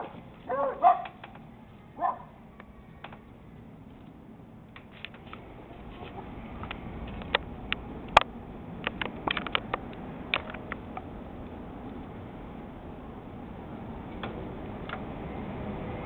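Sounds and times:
sharp clicks and crackles: 0:04.0 - 0:12.2.

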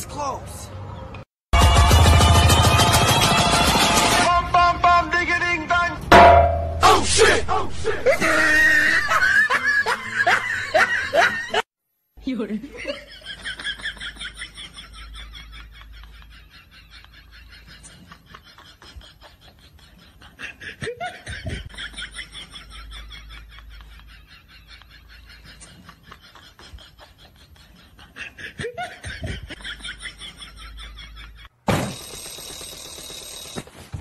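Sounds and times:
people giggling: 0:08.0 - 0:11.6, 0:12.6 - 0:31.5.

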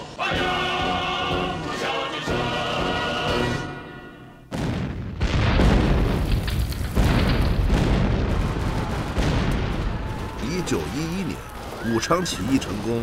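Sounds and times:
explosion booms: 0:04.5 - 0:11.8.

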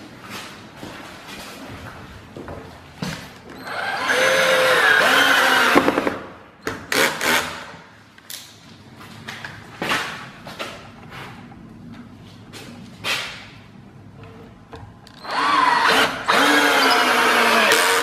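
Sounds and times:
cordless drill driving screws: 0:03.6 - 0:06.0, 0:15.2 - 0:18.0.

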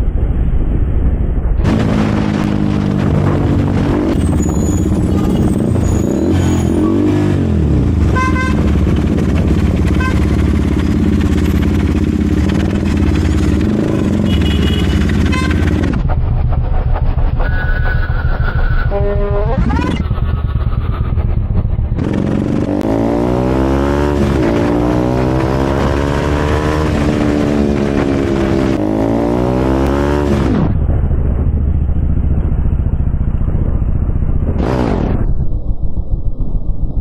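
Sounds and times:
motorcycle engine revving: 0:01.6 - 0:37.0
vehicle horn beeps: 0:04.3 - 0:07.1, 0:08.1 - 0:08.7, 0:09.9 - 0:10.4, 0:14.2 - 0:15.8, 0:18.7 - 0:20.0.

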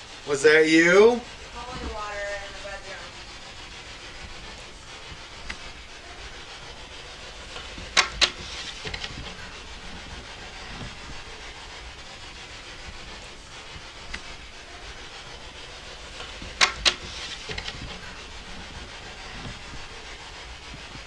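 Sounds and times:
static hiss: 0:00.0 - 0:21.0.

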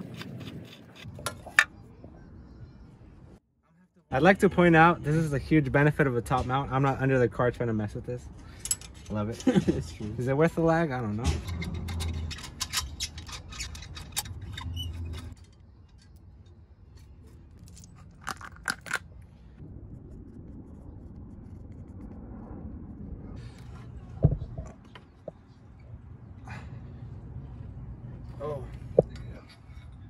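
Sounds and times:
wrench and metal parts clinking: 0:08.5 - 0:09.6, 0:11.2 - 0:19.1.

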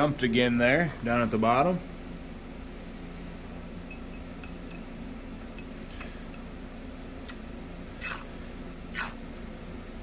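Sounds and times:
low electrical hum: 0:00.0 - 0:10.0.

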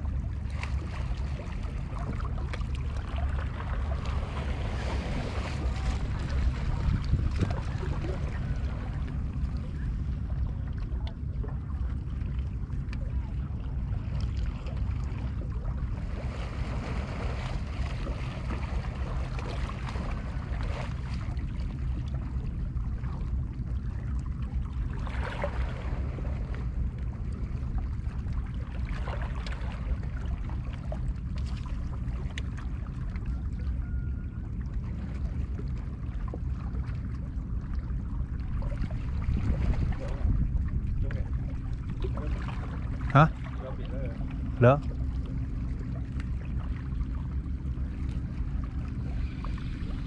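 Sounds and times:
low rumble: 0:00.0 - 0:50.0.

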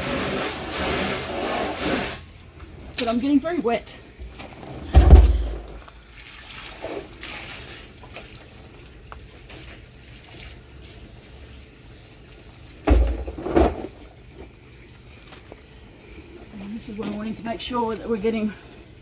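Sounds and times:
water sloshing in plastic drum: 0:02.1 - 0:19.0
hollow thumps of drum: 0:04.9 - 0:05.8.

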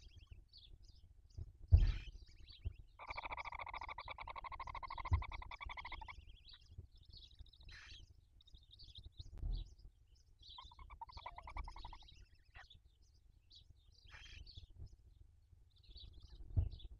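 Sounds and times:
owl twittering: 0:01.8 - 0:06.7, 0:07.3 - 0:08.1, 0:10.4 - 0:12.7, 0:14.1 - 0:14.6
owl buzzing trill: 0:03.0 - 0:06.2, 0:10.6 - 0:12.1.

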